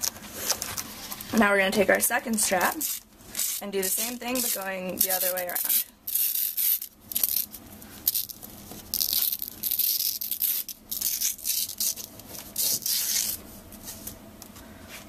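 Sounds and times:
hook-and-loop strap scratching: 2.4s - 13.4s.

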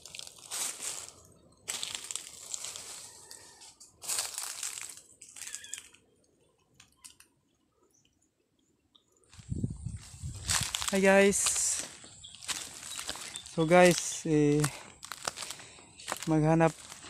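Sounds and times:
footsteps crunching through dry leaves: 0.0s - 5.9s, 9.3s - 17.0s.

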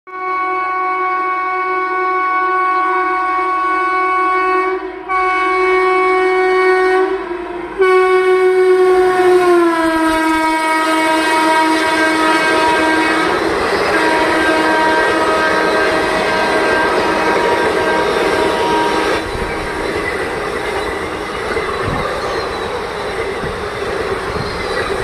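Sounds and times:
locomotive horn blasts: 0.1s - 19.8s
train wheels clattering: 12.4s - 25.0s.

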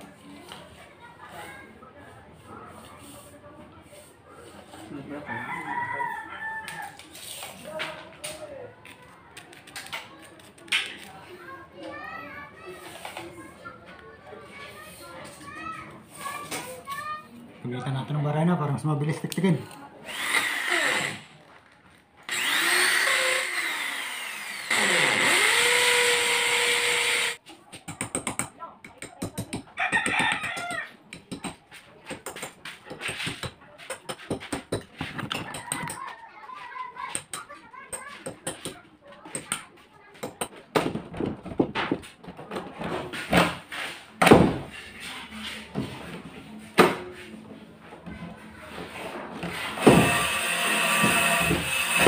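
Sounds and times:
electric drill whining: 20.1s - 21.3s, 22.3s - 27.4s, 49.8s - 52.0s.

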